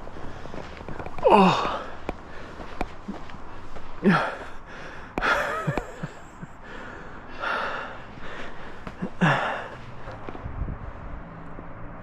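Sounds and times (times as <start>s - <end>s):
heavy labored breathing: 0.0s - 11.2s
person grunting: 1.2s - 1.9s, 4.0s - 4.4s.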